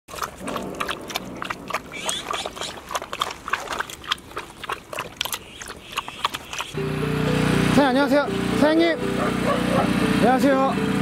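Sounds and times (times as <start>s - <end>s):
puppy lapping water from metal bowl: 0.1s - 6.8s.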